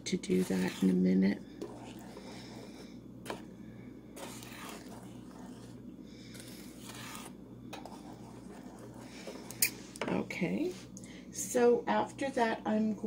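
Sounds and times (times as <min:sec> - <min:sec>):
faint low hum: 0:00.0 - 0:13.0
wooden spoon scraping saucepan: 0:00.1 - 0:03.4, 0:04.2 - 0:09.7.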